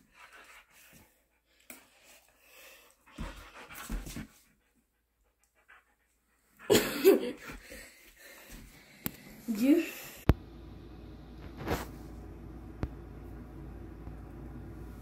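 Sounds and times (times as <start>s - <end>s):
dog panting: 0.0s - 8.8s.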